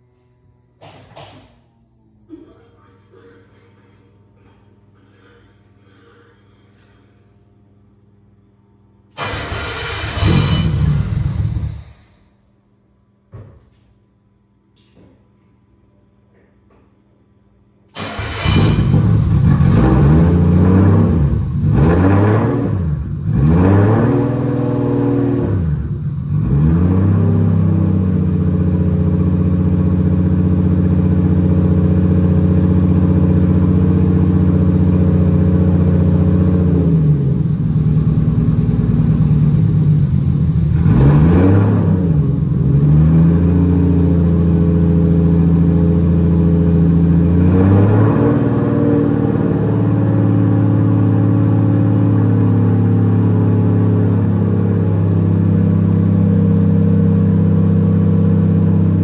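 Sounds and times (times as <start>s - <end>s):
car engine idling: 18.0s - 59.0s
engine revving: 18.0s - 59.0s.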